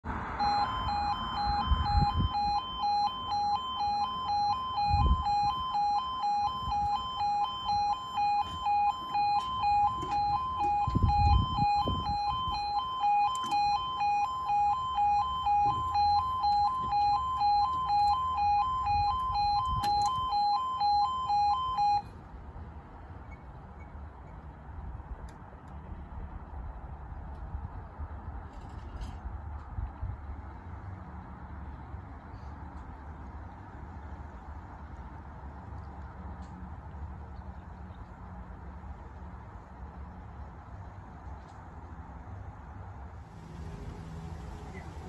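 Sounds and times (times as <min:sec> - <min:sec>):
two-tone warbling crossing alarm: 0:00.4 - 0:22.1.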